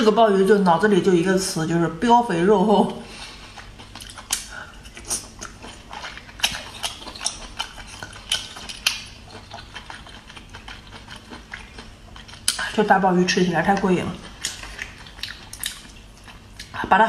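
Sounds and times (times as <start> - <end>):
wet chewing clicks and smacks: 3.2 - 12.7, 13.7 - 16.8.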